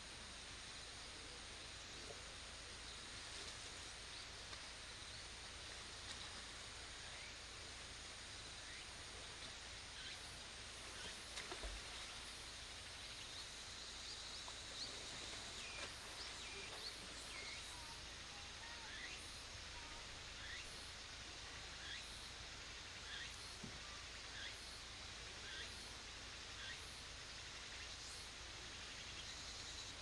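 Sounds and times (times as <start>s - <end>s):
steady hiss: 0.0s - 30.0s.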